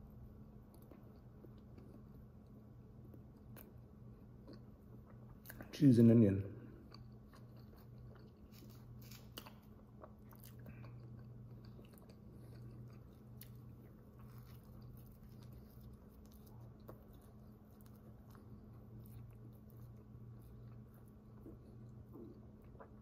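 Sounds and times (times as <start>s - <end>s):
steady low hum: 0.0s - 23.0s
faint chewing: 0.6s - 5.8s, 6.6s - 23.0s.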